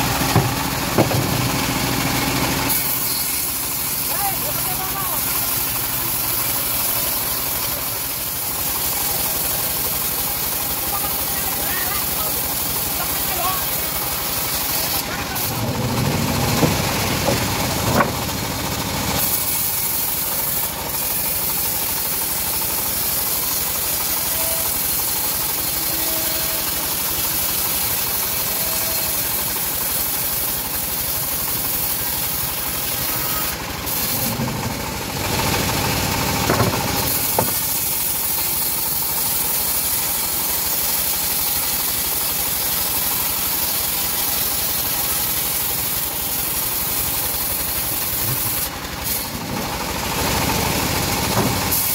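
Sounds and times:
bandsaw sawing through log: 0.0 - 51.9.

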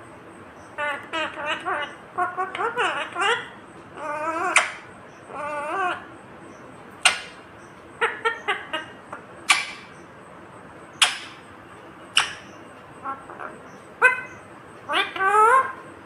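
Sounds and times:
parakeet warbling: 0.6 - 6.2, 7.0 - 7.4, 8.0 - 10.0, 10.9 - 11.4, 12.1 - 15.8.

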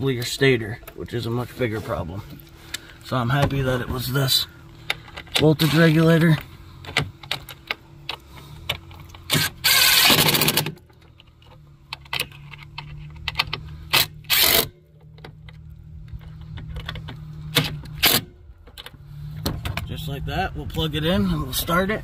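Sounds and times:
tool handling clicks and knocks: 4.8 - 19.9
cordless drill running: 9.3 - 10.6, 14.0 - 14.7.

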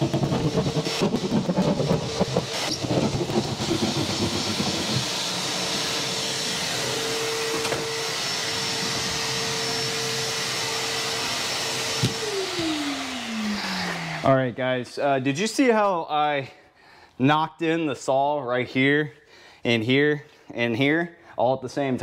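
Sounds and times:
hand saw rasping through drywall: 0.0 - 6.2
vacuum cleaner whining: 0.0 - 14.7.

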